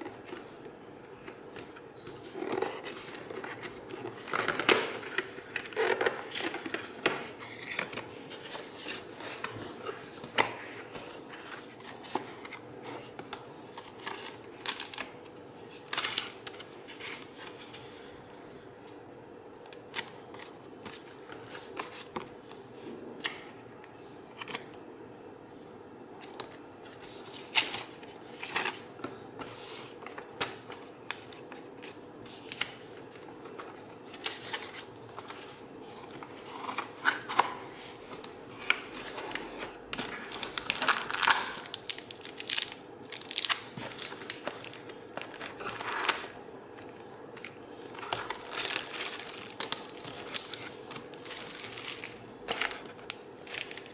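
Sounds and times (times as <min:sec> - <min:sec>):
faint steady hum: 0:00.0 - 0:53.9
paper rustling: 0:26.3 - 0:53.9
plastic wrapping crinkling: 0:32.4 - 0:53.9.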